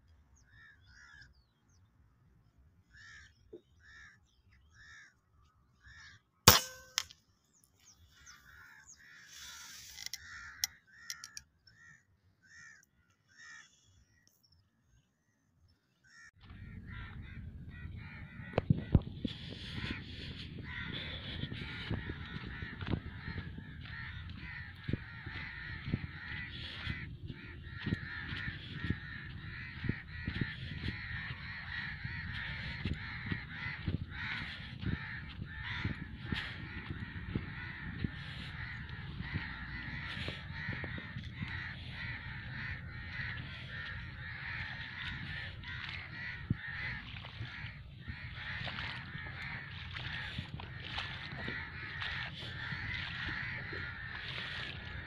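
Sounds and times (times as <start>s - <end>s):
flock of birds calling: 16.0s - 55.0s.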